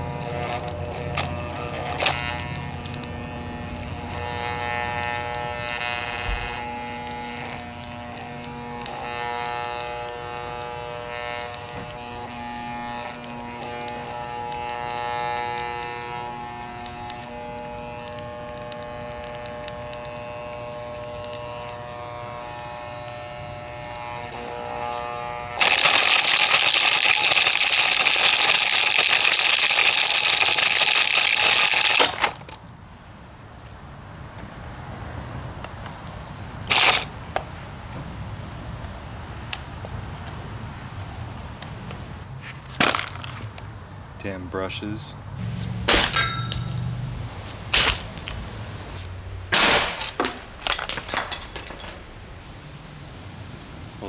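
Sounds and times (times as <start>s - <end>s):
blender motor whining: 0.0s - 32.6s, 36.7s - 37.1s.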